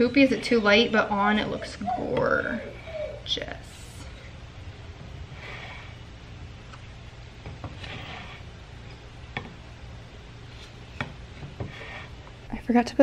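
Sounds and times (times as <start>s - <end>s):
low steady hum: 0.0s - 13.0s
stick stirring thick paint: 4.9s - 9.8s, 10.4s - 12.4s.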